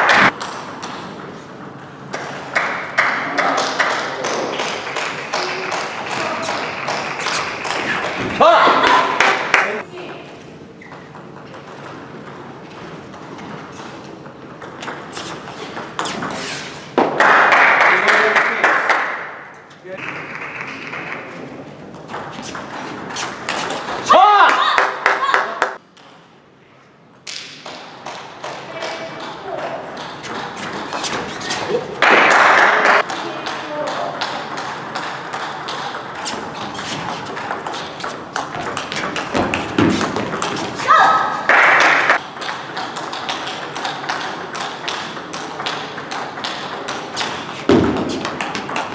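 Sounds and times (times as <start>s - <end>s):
large hall background noise: 0.0s - 48.9s
applause: 17.2s - 19.2s.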